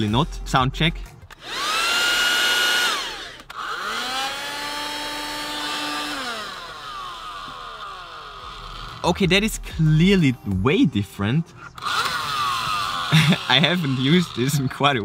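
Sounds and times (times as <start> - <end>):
handheld vacuum cleaner whine: 1.3 - 9.1, 11.8 - 15.0.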